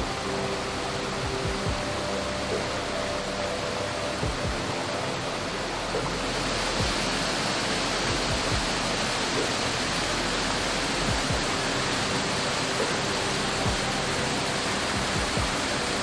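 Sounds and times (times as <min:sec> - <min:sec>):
water rushing: 0:00.0 - 0:16.0
soft low thumps: 0:01.0 - 0:02.1, 0:04.2 - 0:05.0, 0:07.9 - 0:09.0, 0:11.0 - 0:12.1, 0:14.9 - 0:15.7.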